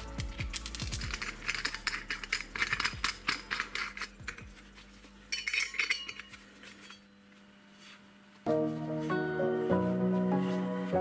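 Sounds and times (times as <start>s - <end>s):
metal washers and nut clicking: 0.0s - 4.6s, 5.3s - 7.0s.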